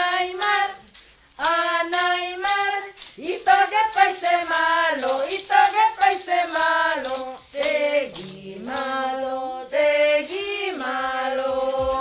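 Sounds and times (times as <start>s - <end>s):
maraca shaking: 0.0s - 12.0s
women singing: 0.0s - 12.0s.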